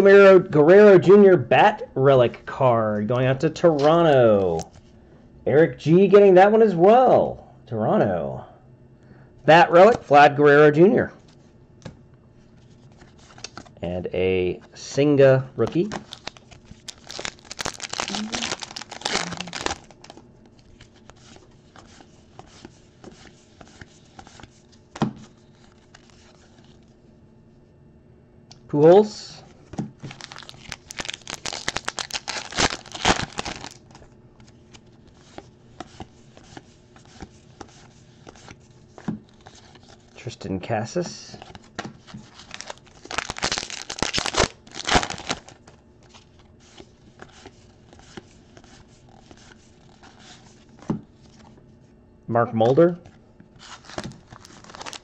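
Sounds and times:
cards rustling: 12.5 - 13.7, 15.6 - 26.9, 29.7 - 40.2, 41.0 - 51.6, 53.0 - 55.0
wrapper tearing and crinkling: 16.0 - 20.2, 30.1 - 34.0, 42.3 - 45.6, 53.6 - 55.0.

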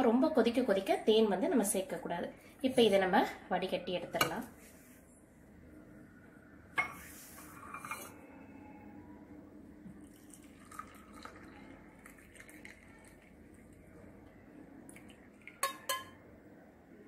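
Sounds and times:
liquid pouring into glass: 9.9 - 14.1, 14.8 - 16.2
glass clinking: 15.4 - 16.2.

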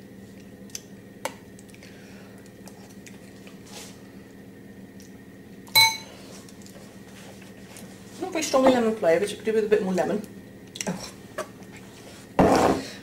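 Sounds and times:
low steady hum: 0.0 - 13.0
metal spoon clinking on glass bowl: 5.8 - 6.1.

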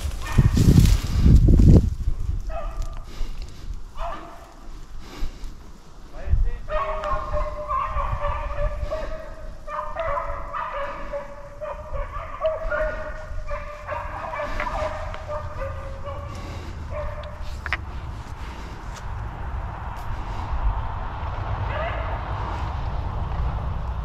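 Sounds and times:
hounds baying: 0.0 - 1.2, 2.5 - 4.8, 6.7 - 18.7
low rumble: 13.1 - 24.0.

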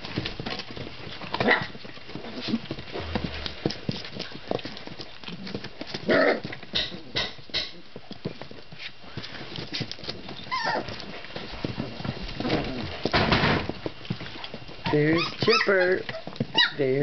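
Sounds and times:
puppy crying: 10.5 - 10.9, 14.8 - 16.8.

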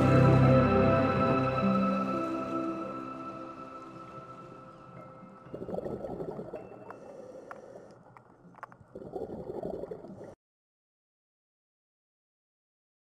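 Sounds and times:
diver's bubbles gurgling underwater: 5.5 - 7.0, 8.8 - 10.3
faint clicks: 6.8 - 9.0.

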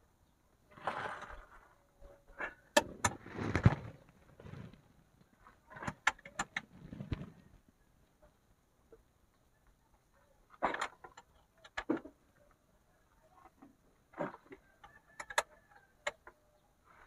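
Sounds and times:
hands scraping and rustling: 3.0 - 7.6.

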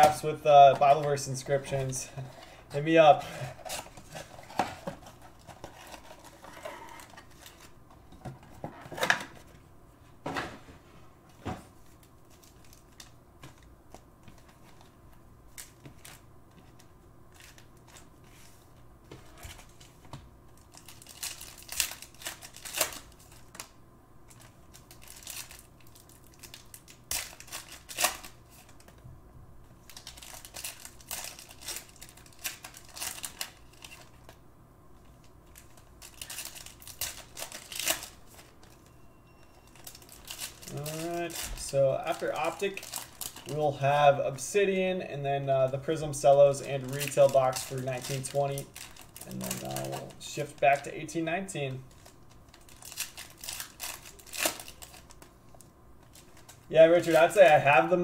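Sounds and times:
plastic and foil crinkling: 0.0 - 8.7, 11.8 - 13.7, 19.3 - 23.7, 24.3 - 29.0, 29.8 - 34.4, 35.0 - 38.9, 39.6 - 44.0, 45.7 - 58.0.

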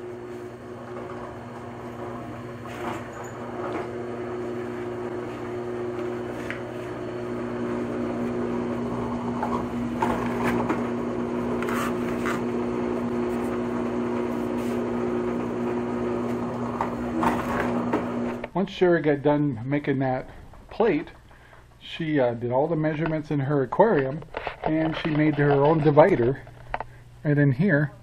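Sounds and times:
drill press motor hum: 0.0 - 18.5
drill bit scraping plastic: 11.5 - 12.6, 24.1 - 26.9.

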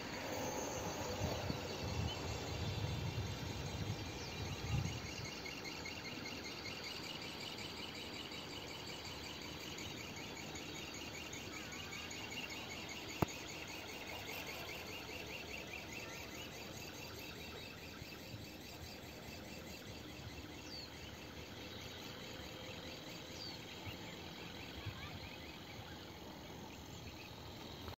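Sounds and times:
insects trilling: 0.0 - 27.9
bird chirps: 18.7 - 27.9.

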